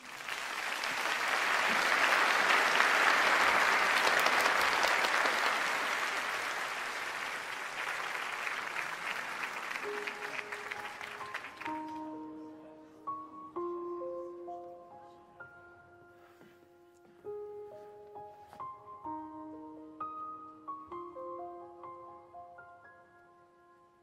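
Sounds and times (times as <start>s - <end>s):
audience applauding: 0.0s - 12.1s.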